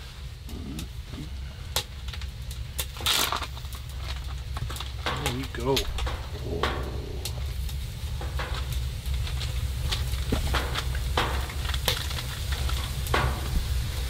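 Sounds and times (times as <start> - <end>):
steak sizzling in a skillet: 7.0 - 14.0.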